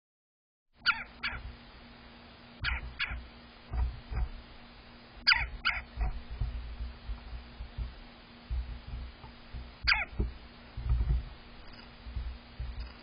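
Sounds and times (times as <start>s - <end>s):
woodpecker calling: 0.8s - 1.5s, 2.6s - 3.3s, 5.2s - 6.4s, 9.7s - 10.3s
bird pecking on feeder: 5.3s - 13.0s.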